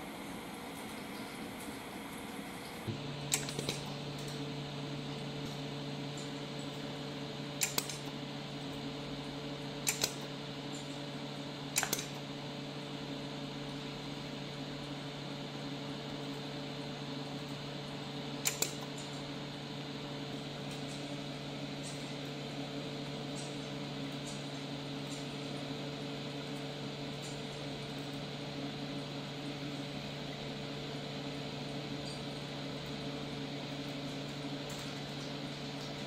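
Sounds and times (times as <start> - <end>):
steady machine hum: 0.0 - 36.0
laser pulses snapping: 7.6 - 8.1, 9.8 - 10.3, 18.4 - 18.9.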